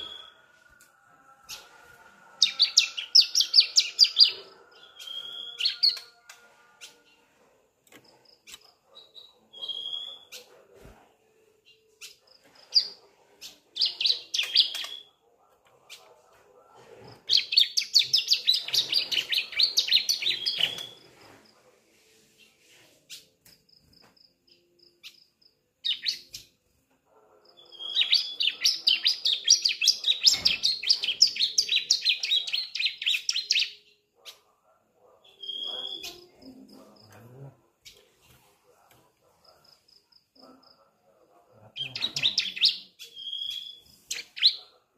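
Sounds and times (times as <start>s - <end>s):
young bird chirping and singing: 2.4s - 6.1s, 13.8s - 15.0s, 17.3s - 21.0s, 27.8s - 33.9s.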